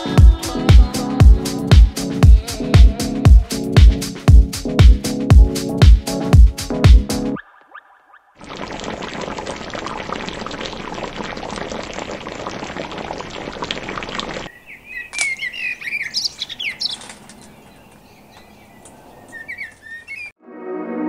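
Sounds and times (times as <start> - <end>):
birds chirping: 14.5 - 20.4.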